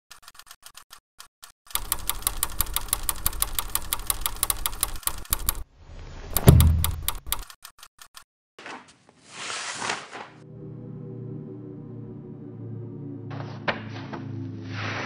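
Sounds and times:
rapid mechanical clicking: 0.1 - 5.7, 6.4 - 8.2.

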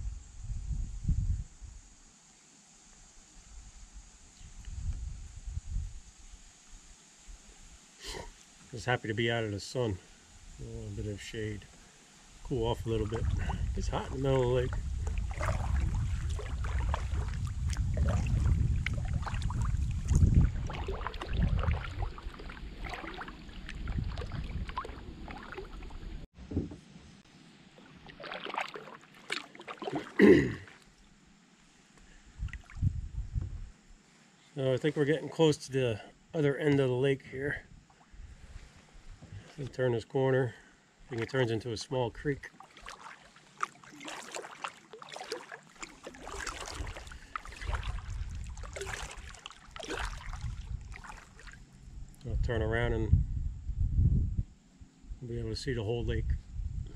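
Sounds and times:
wind on microphone: 0.0 - 2.0, 3.4 - 6.5, 12.4 - 27.1, 32.3 - 33.8, 46.1 - 56.9
kayak paddle splashing: 11.3 - 26.3, 27.4 - 31.1, 41.1 - 51.8.

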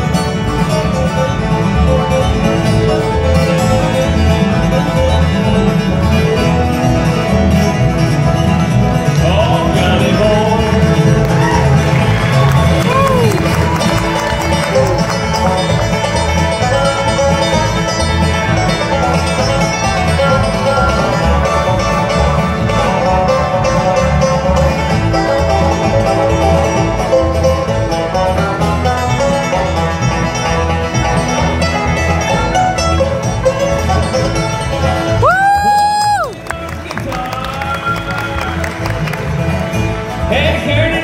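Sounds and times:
acoustic guitar strumming: 0.0 - 41.0
fast banjo picking: 0.0 - 41.0
upright bass: 0.0 - 41.0.

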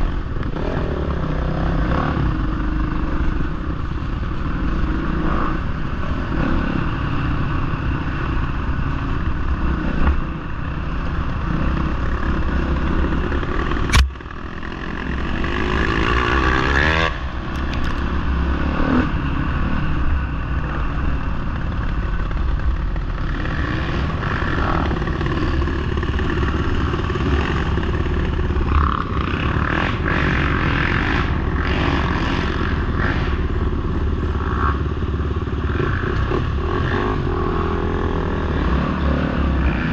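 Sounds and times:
dirt bike engine revving: 4.5 - 17.2, 23.0 - 39.9.

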